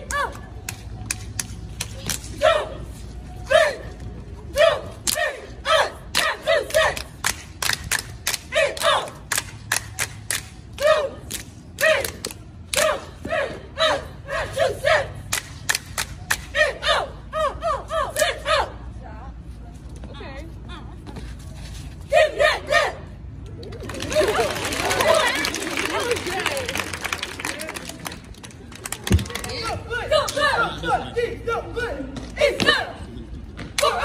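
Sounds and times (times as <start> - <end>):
sharp claps: 6.2 - 10.6, 15.3 - 16.5, 23.8 - 29.6.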